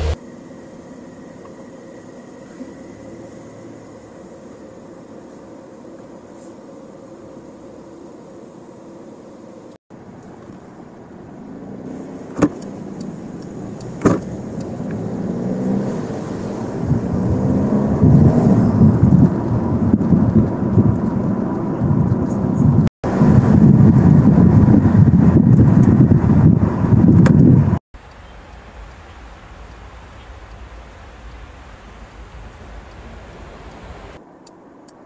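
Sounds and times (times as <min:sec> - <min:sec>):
road and engine noise: 0:00.0 - 0:35.0
wind rush and buffeting: 0:10.0 - 0:35.0.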